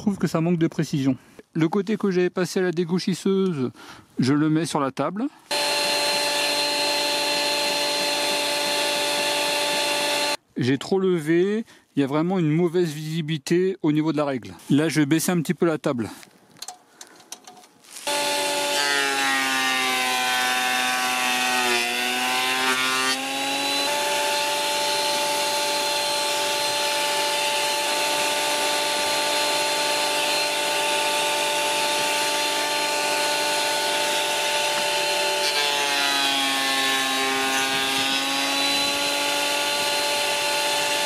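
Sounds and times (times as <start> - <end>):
cutter block cutting board: 5.5 - 10.4, 18.0 - 41.0
planer motor whine: 5.5 - 10.4, 18.1 - 19.2, 19.8 - 41.0.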